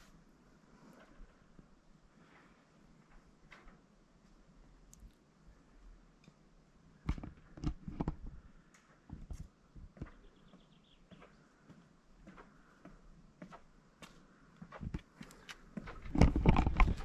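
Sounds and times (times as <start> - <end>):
footsteps: 11.0 - 17.0.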